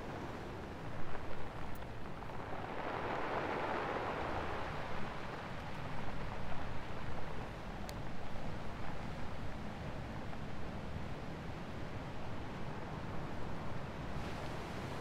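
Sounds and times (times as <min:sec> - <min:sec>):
faint ticks: 0:07.8 - 0:08.0.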